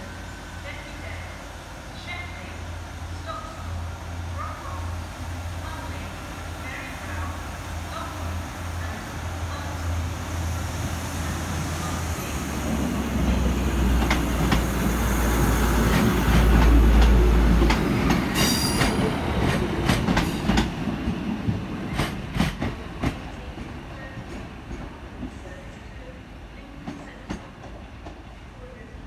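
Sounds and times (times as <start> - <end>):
diesel train engine drone: 0.0 - 24.0
train wheels clicking over rail joints: 13.3 - 14.8, 15.8 - 20.8.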